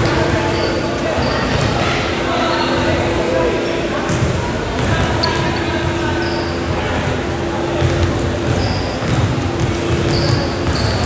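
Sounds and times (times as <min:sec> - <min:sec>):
sneaker squeaks: 0:00.0 - 0:02.1, 0:04.1 - 0:06.8, 0:07.6 - 0:11.0
players' voices echoing: 0:00.0 - 0:11.0
basketball bouncing on court: 0:01.2 - 0:01.8, 0:04.1 - 0:06.0, 0:07.7 - 0:11.0.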